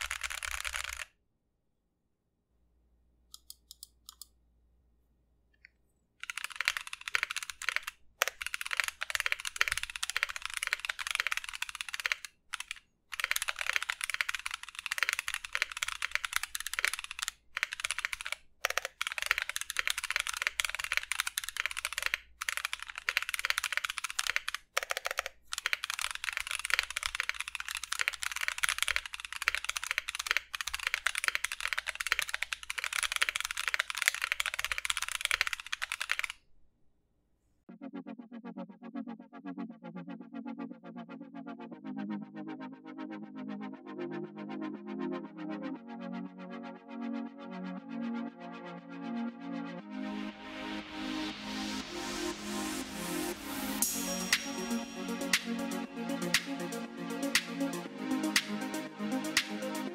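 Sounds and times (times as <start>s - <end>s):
fast typing on mechanical keyboard: 0.0s - 1.1s, 6.2s - 36.4s.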